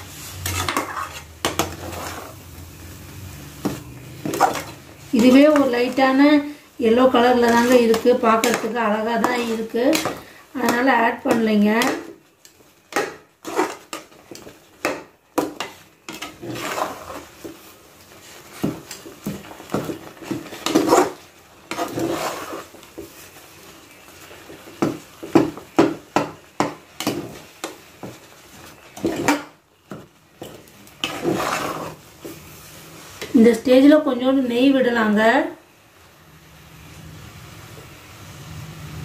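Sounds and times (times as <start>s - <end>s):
spoon scraping metal pan: 0.0s - 2.4s, 3.6s - 17.6s, 18.2s - 23.2s, 24.0s - 29.6s, 30.4s - 33.7s.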